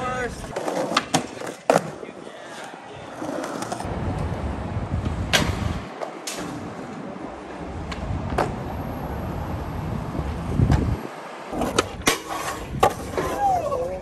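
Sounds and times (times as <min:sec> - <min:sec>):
skateboard wheels rolling on asphalt: 0:00.0 - 0:14.0
skateboard clacks: 0:00.4 - 0:02.0.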